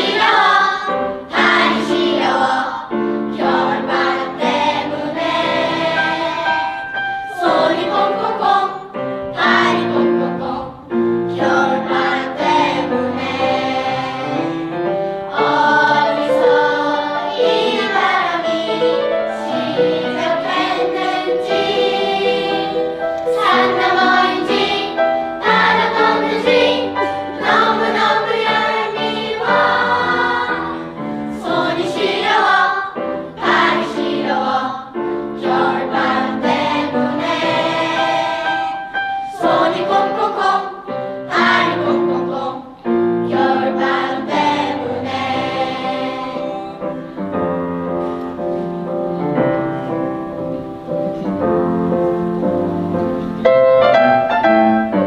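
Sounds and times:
children's choir singing in harmony: 0.0 - 55.0.

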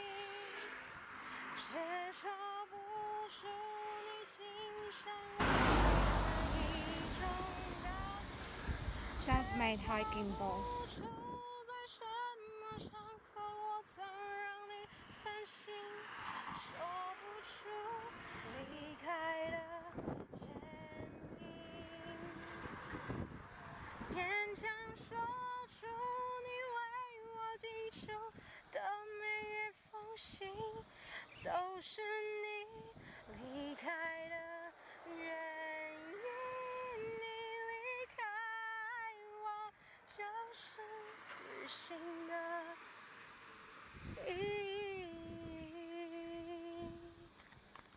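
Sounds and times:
woman singing slow melody: 0.0 - 23.0, 24.1 - 43.0, 44.1 - 47.4
woman singing slowly: 1.6 - 14.8, 44.2 - 47.2.

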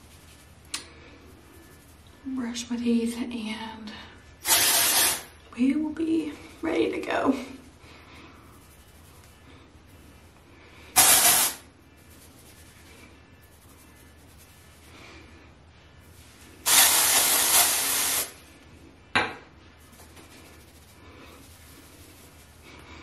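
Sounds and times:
aerosol spray hissing: 4.4 - 5.3, 11.0 - 11.7, 16.6 - 18.4.

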